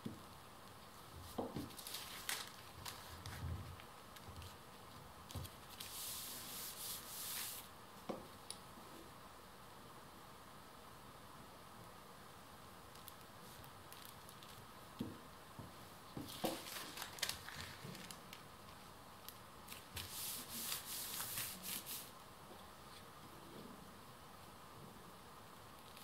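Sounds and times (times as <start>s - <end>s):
paper bags rustling and crinkling: 1.3s - 4.6s, 16.2s - 18.8s.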